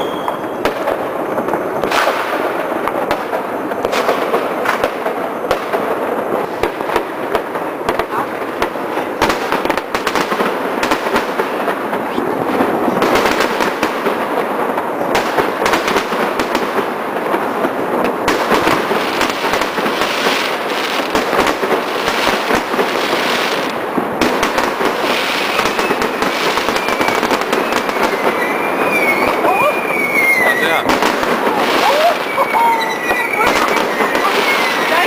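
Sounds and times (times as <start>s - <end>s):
firework whistle: 0.0s - 2.5s, 25.3s - 35.0s
fireworks bangs and crackling: 0.0s - 35.0s.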